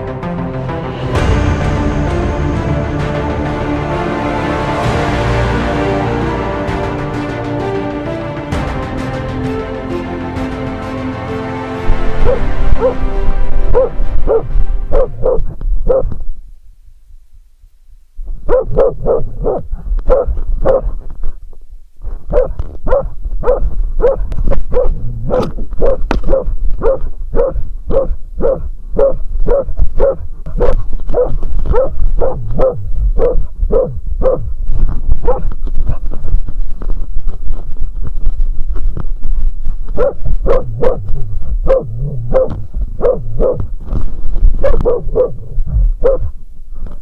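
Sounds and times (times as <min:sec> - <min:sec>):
dog barking: 0:12.2 - 0:13.0, 0:13.7 - 0:16.1, 0:18.5 - 0:21.0, 0:22.3 - 0:34.5, 0:35.2 - 0:35.5, 0:40.0 - 0:43.6, 0:44.6 - 0:46.3.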